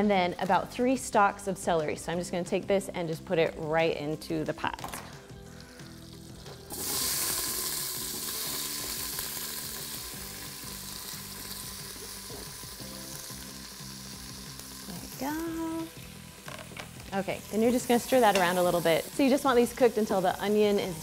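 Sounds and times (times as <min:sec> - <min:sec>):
vegetables sizzling in oil: 0:05.4 - 0:21.0.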